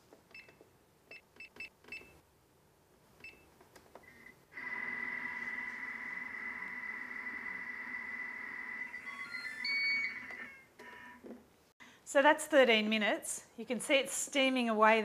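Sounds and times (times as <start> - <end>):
control panel beeping: 8.9 - 11.2.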